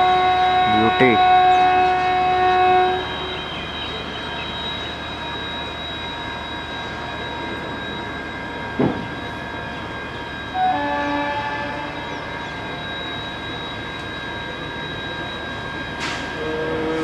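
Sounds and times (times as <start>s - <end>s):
locomotive air horn blasts: 0.0s - 4.3s, 10.5s - 12.3s, 16.0s - 17.0s
steady high whine: 0.0s - 17.0s.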